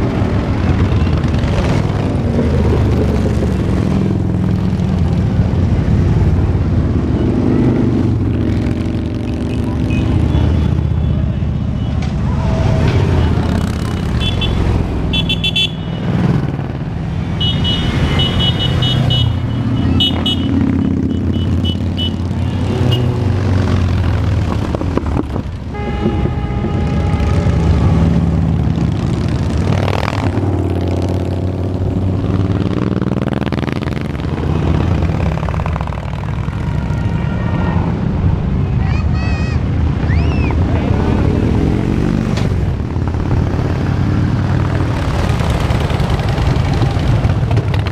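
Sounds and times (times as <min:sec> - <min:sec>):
motorcycle engines rumbling: 0:00.0 - 0:47.9
horn sounding: 0:25.6 - 0:28.2.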